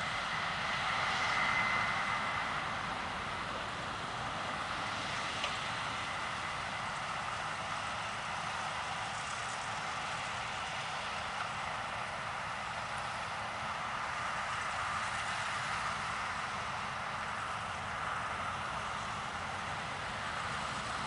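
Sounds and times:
combine harvester machinery hum: 0.0 - 21.0.

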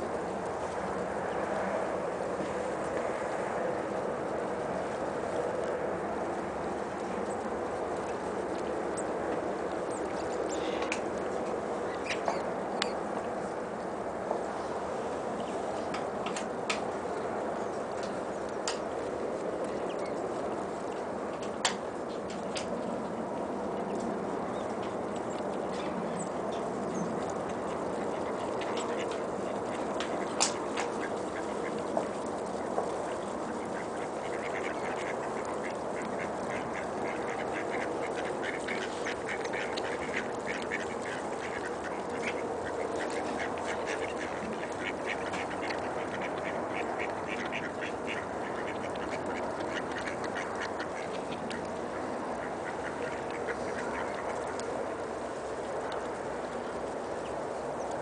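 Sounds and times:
steady background hiss: 0.0 - 58.0
ducks quacking: 27.3 - 54.6.

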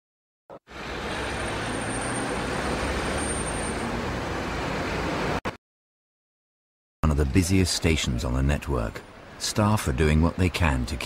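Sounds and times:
vehicle rumble: 0.7 - 5.5.

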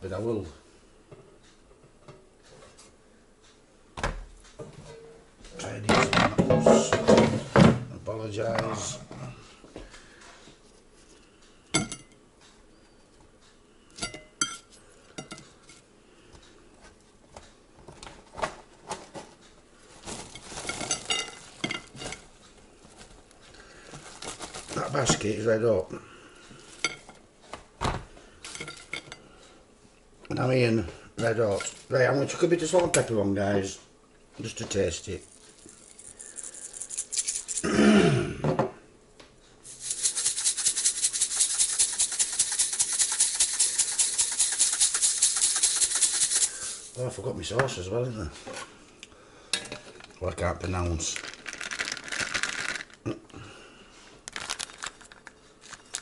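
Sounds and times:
seasoning shaker rattling: 20.2 - 22.3, 23.9 - 25.5, 35.0 - 37.7, 39.6 - 47.1, 50.9 - 53.0, 54.3 - 56.0.

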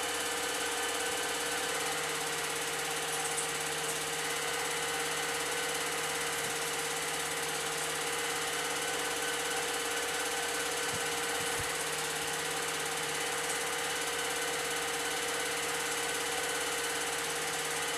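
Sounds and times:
film projector running: 0.0 - 17.9.

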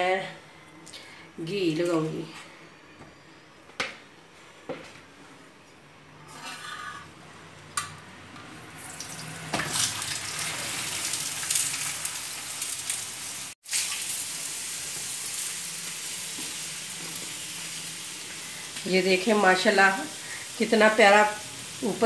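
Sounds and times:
ghee sizzling on a hot griddle: 8.8 - 22.0.

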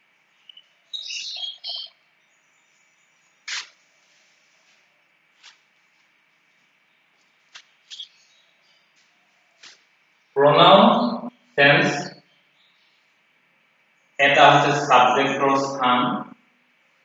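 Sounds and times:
chalk squeak: 3.5 - 3.8.

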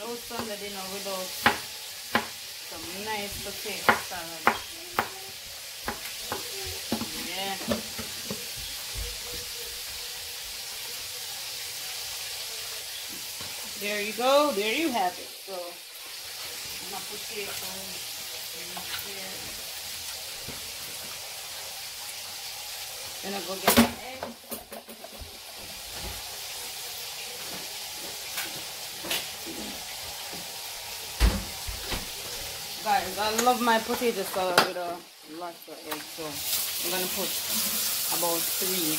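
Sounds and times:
chicken sizzling in oil: 0.0 - 38.9
knife tapping on cutting board: 1.4 - 2.4, 3.8 - 5.2.

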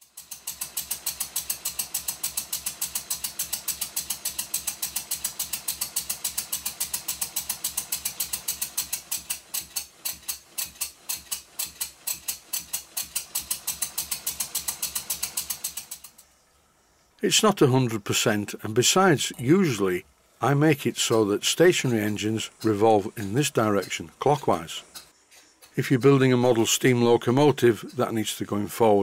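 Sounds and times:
model engine exhaust puffing: 0.0 - 16.3.

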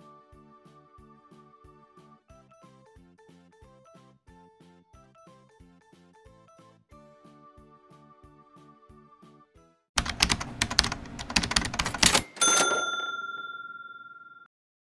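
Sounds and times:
soft background music: 0.0 - 12.2
rapid clicks: 10.0 - 12.4
bell ding: 12.2 - 14.5.

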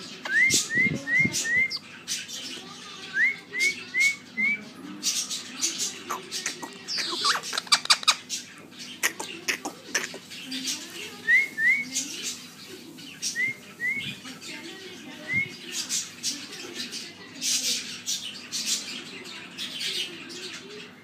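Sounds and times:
parakeet chirping: 0.0 - 4.4, 5.1 - 12.5.

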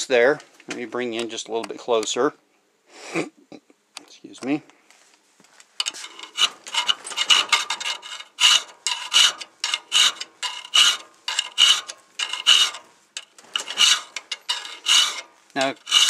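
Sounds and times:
file rasping on metal: 5.9 - 16.0.

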